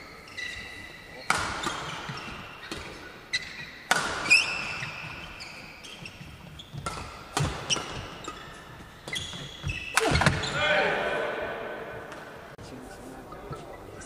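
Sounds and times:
shoes squeaking on floor: 0.0 - 10.7
rackets hitting shuttlecock: 1.3 - 12.5.

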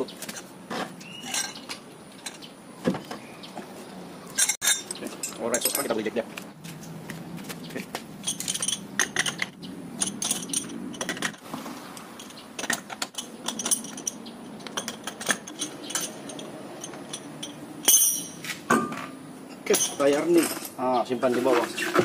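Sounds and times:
loose nuts rattling: 8.2 - 18.9
wrench clicking on wheel nuts: 12.2 - 18.4.

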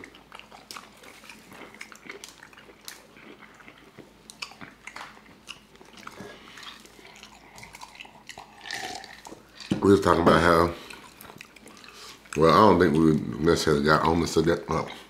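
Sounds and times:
people chewing and biting: 0.0 - 15.0.

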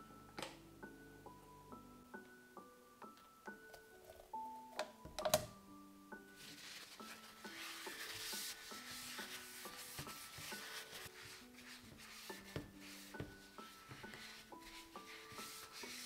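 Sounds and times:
quiet piano music: 0.0 - 16.0
paper towel scraping mould: 6.4 - 16.0.

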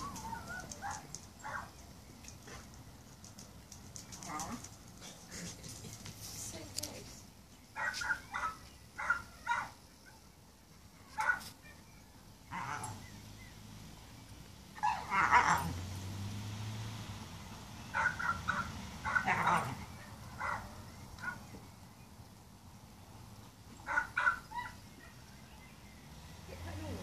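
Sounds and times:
dog yelping and barking: 0.0 - 1.7, 7.8 - 10.2, 11.1 - 11.9, 12.5 - 13.0, 14.8 - 15.8, 18.0 - 21.4, 23.9 - 25.2.

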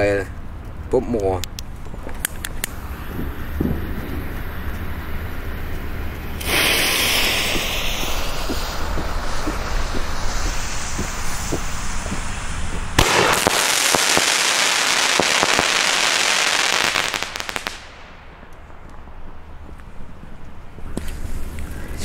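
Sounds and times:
firework crackling: 1.9 - 20.4
firework bang: 2.8 - 4.4, 6.3 - 18.8
fuse hissing: 6.1 - 18.0.

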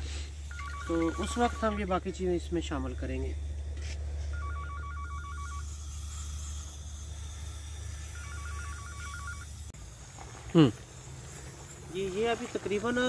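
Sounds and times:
steady low hum: 0.0 - 13.0
phone ringing with warbling trill: 0.5 - 1.9, 4.3 - 5.6, 8.2 - 9.5.

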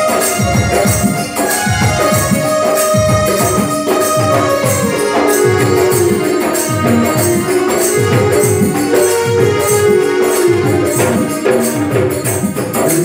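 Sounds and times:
keyboard melody: 0.0 - 13.0.

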